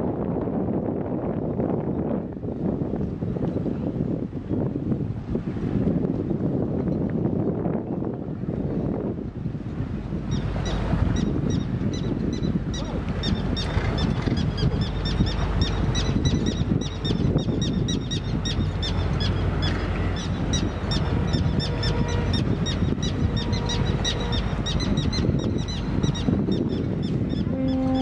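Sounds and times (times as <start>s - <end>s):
wind rumble on microphone: 0.0s - 28.0s.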